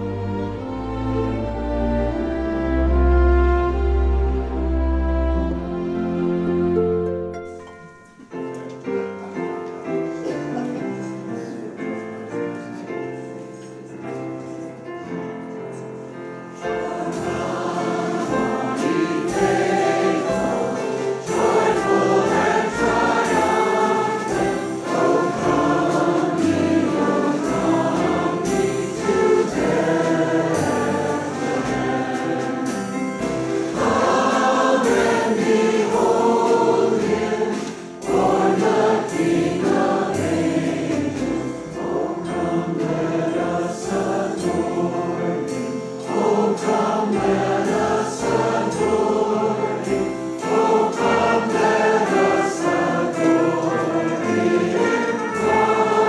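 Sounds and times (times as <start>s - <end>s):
choir singing with instruments: 0.0s - 13.7s, 14.8s - 56.0s.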